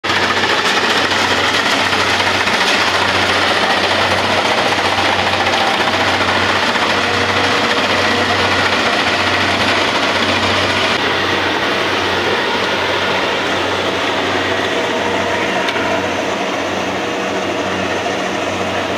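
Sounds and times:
combine harvester engine: 0.0s - 18.9s
machinery clattering: 0.1s - 18.9s.

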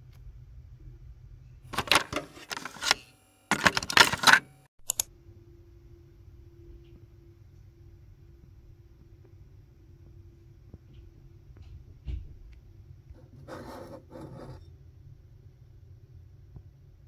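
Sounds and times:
mechanical keyboard typing: 3.5s - 5.1s
quick clicks: 3.5s - 5.1s.

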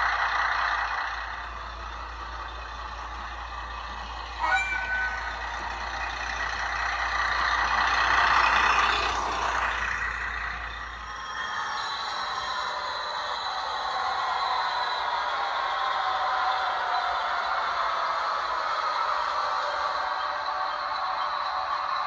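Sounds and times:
model train diesel engine sound: 0.0s - 22.0s.

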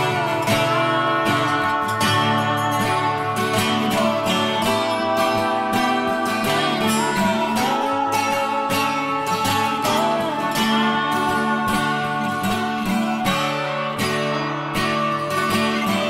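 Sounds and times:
acoustic guitar strumming: 0.0s - 16.0s.

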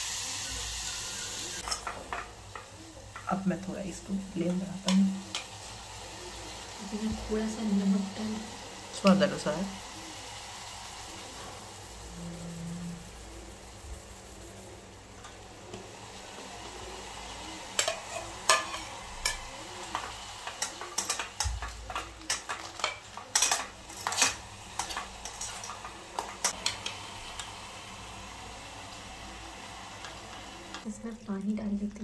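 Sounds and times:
tomatoes sizzling in oil: 0.0s - 32.0s
spoon clinking against pot: 17.8s - 26.8s.

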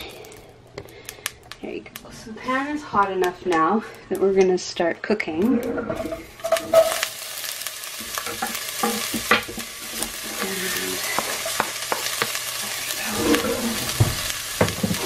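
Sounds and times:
onions sizzling in oil: 5.4s - 15.0s.

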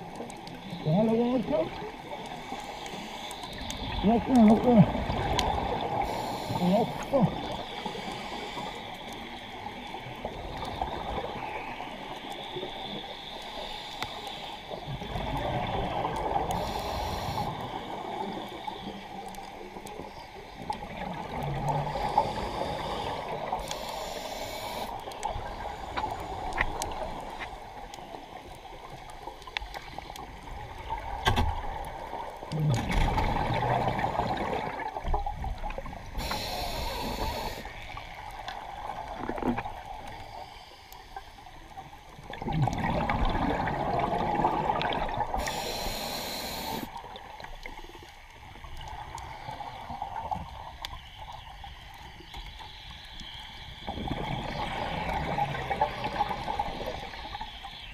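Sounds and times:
exhaled bubbles gurgling: 0.0s - 40.4s, 41.7s - 52.3s, 53.6s - 57.9s
underwater watery wash: 0.0s - 57.9s
regulator hisses: 16.6s - 18.8s, 21.9s - 26.4s, 36.2s - 37.9s, 45.4s - 47.0s.

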